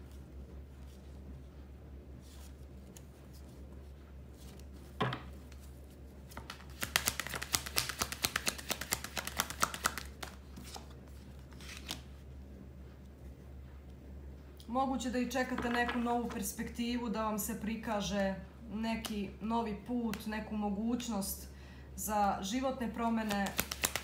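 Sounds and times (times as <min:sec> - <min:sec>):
cards shuffling: 0:04.4 - 0:12.2, 0:23.2 - 0:24.0.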